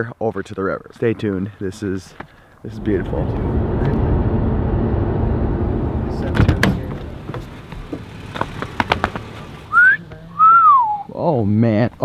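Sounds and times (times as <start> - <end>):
car road and engine rumble: 2.7 - 10.5.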